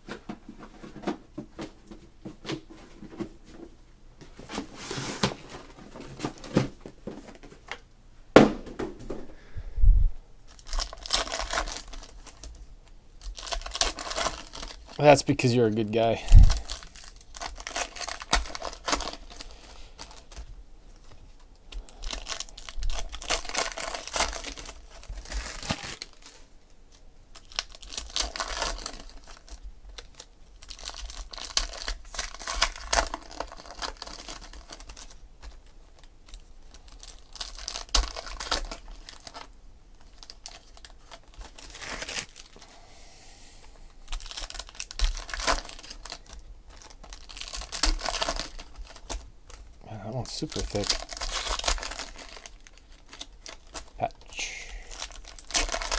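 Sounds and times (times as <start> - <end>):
foil wrappers tearing and crinkling: 10.5 - 42.7, 44.0 - 55.9.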